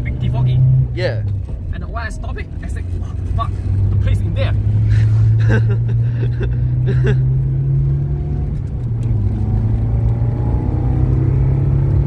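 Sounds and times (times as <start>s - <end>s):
car engine drone inside cabin: 0.0s - 12.0s.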